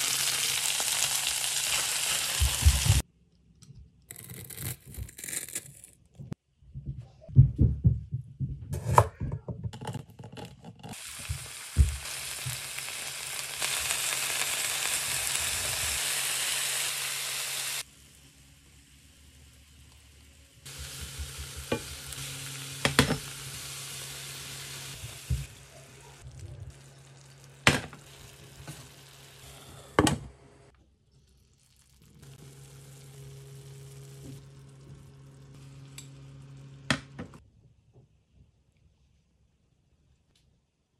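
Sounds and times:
vegetables sizzling in oil: 0.0 - 3.0, 10.9 - 29.9, 31.6 - 36.9.

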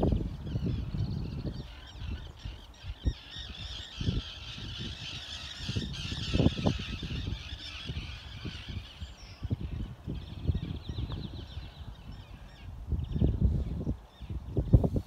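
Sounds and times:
chorus of waterbirds calling: 0.0 - 12.7.

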